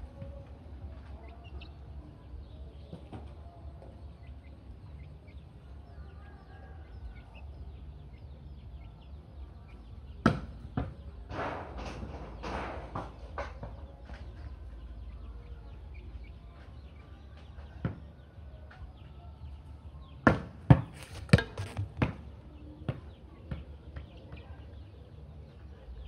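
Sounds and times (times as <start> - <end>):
volleyball being struck: 20.3 - 22.2.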